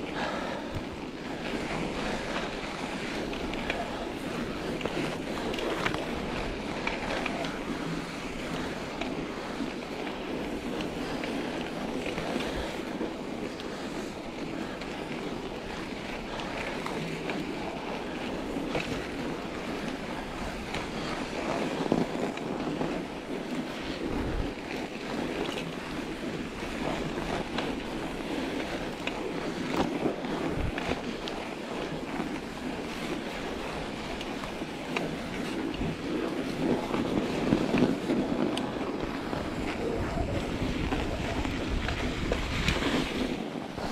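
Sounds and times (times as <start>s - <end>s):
bike tyres rolling on snow: 0.0s - 43.9s
wind on microphone: 22.5s - 43.9s.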